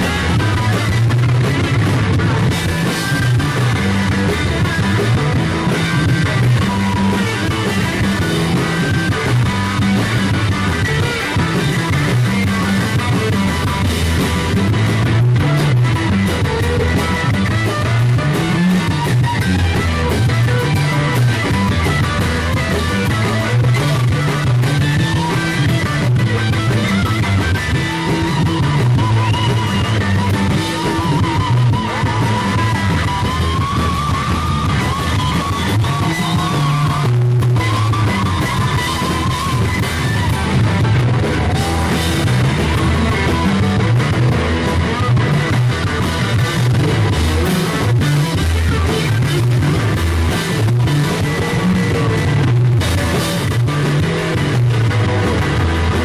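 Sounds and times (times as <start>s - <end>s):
rock band playing live: 0.0s - 56.0s
wavering lead guitar line: 0.0s - 56.0s.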